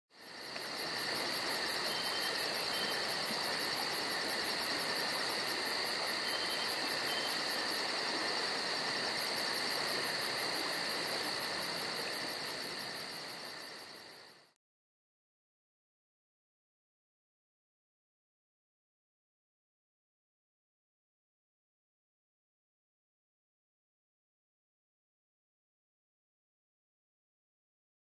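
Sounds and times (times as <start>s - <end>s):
crickets chirping: 0.1s - 14.6s.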